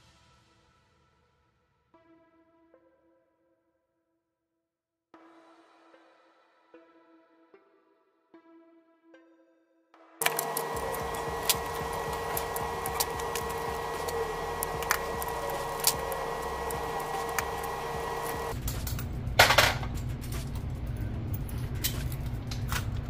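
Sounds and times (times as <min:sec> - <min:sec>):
steady hum: 0:10.2 - 0:18.8.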